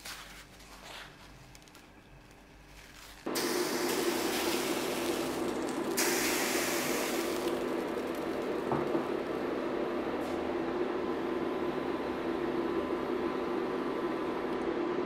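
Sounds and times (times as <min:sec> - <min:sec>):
induction hob fan humming: 0:01.3 - 0:15.0
bright hiss: 0:03.3 - 0:08.2.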